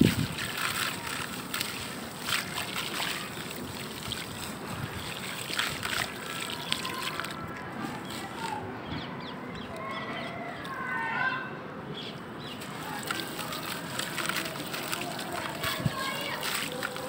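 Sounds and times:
soft splashing: 0:00.0 - 0:08.7, 0:12.6 - 0:17.0.

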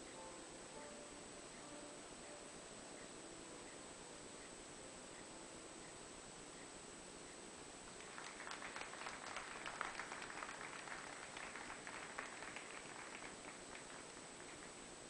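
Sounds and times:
audience applauding: 0:08.0 - 0:14.8.

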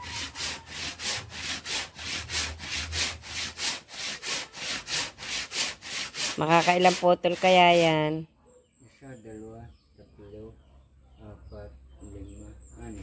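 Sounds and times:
hand saw cutting log: 0:00.0 - 0:08.0.

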